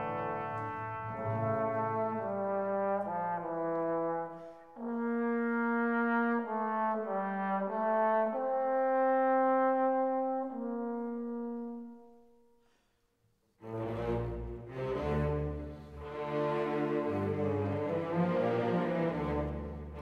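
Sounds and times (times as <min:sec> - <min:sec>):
slow brass melody: 0:00.0 - 0:12.7.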